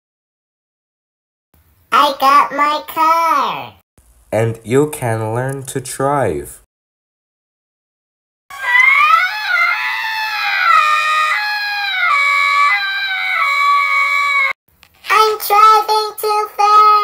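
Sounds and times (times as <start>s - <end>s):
choppy wailing cries: 8.5s - 14.6s
high-pitched voice screaming: 8.5s - 14.6s.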